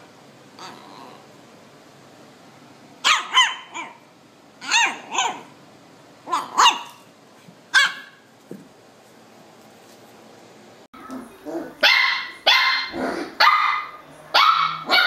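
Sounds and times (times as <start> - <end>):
puppy barking: 3.0 - 5.6, 6.3 - 7.0, 7.7 - 8.2, 11.8 - 15.0.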